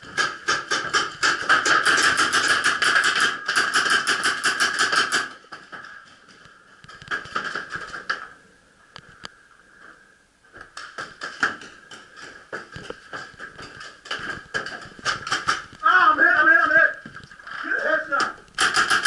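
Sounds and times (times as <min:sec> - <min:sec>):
paintball markers firing pops: 0:18.5 - 0:19.0.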